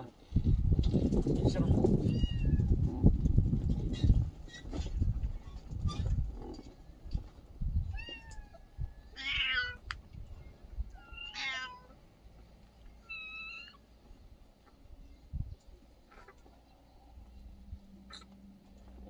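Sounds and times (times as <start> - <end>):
kittens meowing: 2.1 - 2.7, 7.9 - 9.8, 10.9 - 12.0, 13.0 - 13.8.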